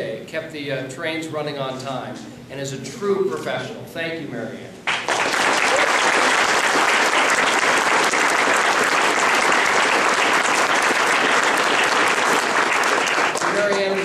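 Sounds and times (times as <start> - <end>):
crowd applauding: 4.9 - 14.0.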